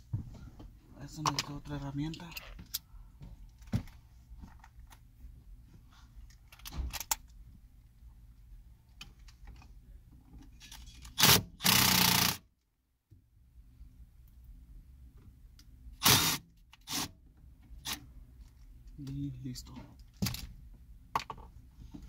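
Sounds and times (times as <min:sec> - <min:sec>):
cordless drill spinning: 0:11.2 - 0:12.4, 0:16.0 - 0:17.0.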